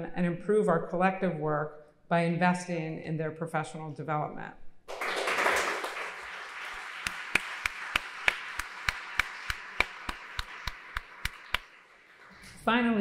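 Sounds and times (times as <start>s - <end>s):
single person clapping: 4.9s - 12.6s
audience applause: 4.9s - 12.7s.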